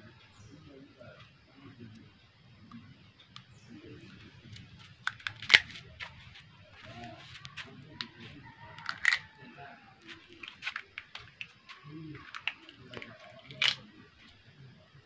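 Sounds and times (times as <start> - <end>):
crab shell cracking: 5.0 - 5.8, 8.8 - 9.4, 10.4 - 13.9.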